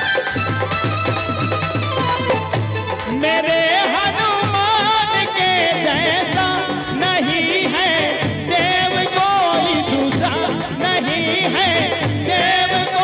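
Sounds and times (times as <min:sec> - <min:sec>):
hand drum: 0:00.0 - 0:13.0
harmonium: 0:00.0 - 0:13.0
man singing devotional song: 0:02.9 - 0:13.0.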